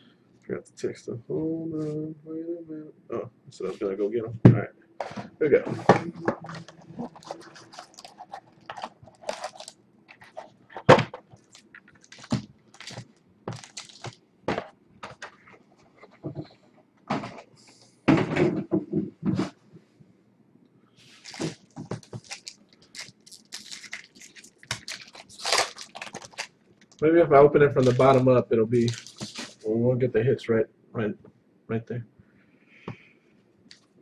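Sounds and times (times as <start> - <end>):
foil packs crinkling and rustling: 6.4 - 14.2, 21.1 - 27.0, 27.7 - 29.6
foil pack tearing open: 7.0 - 10.5, 11.3 - 14.2, 21.2 - 27.0, 27.7 - 28.2, 28.8 - 29.6.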